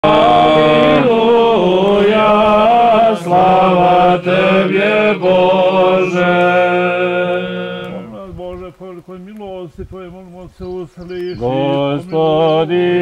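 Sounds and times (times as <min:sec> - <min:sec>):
men singing chant: 0:00.0 - 0:13.0.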